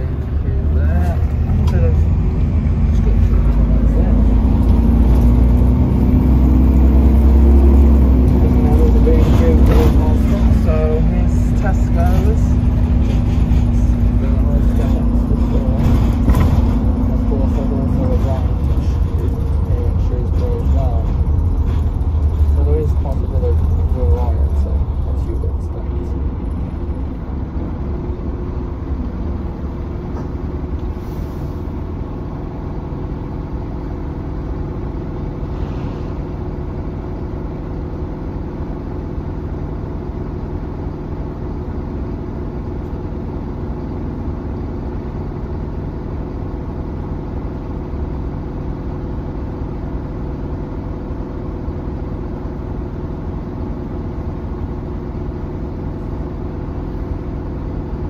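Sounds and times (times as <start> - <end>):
bus engine droning: 0.0 - 58.0.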